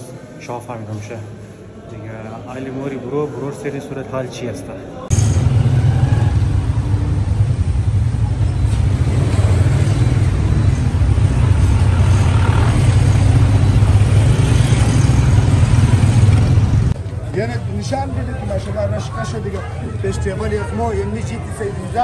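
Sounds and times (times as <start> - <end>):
vehicle low rumble: 5.1 - 17.4.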